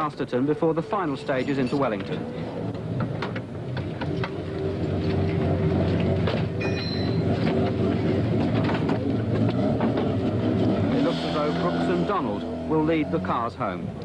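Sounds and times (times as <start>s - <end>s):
engine running: 0.0s - 14.0s
metallic tool clanks: 1.0s - 2.2s, 6.6s - 7.2s.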